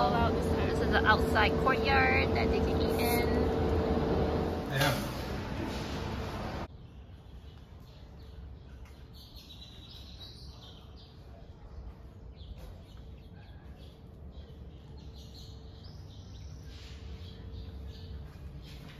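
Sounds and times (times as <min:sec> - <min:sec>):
low outdoor background rumble: 0:00.0 - 0:08.9
small birds chirping: 0:06.7 - 0:18.9.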